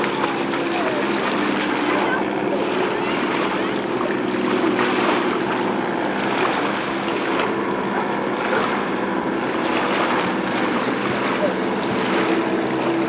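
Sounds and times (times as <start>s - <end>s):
rushing water: 0.0s - 13.0s
watercraft engine running: 0.0s - 13.0s.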